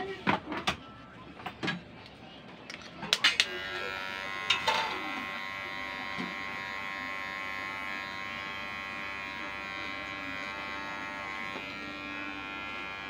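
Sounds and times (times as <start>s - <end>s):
hair clipper buzzing: 3.3s - 13.0s.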